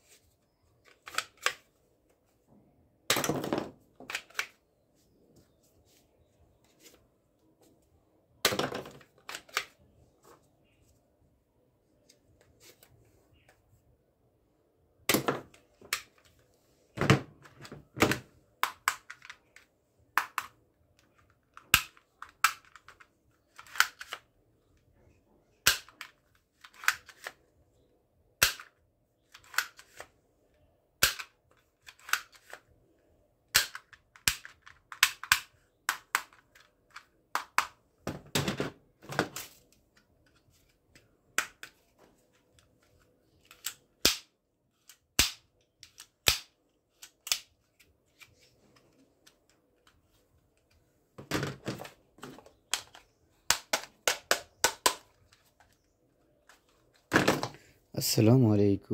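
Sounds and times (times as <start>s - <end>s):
plastic toy gun clicking: 0.9s - 1.6s, 4.0s - 4.6s, 18.6s - 24.3s, 25.6s - 27.4s, 28.4s - 30.0s, 31.0s - 32.6s, 33.5s - 37.8s, 42.9s - 47.6s, 52.7s - 55.4s.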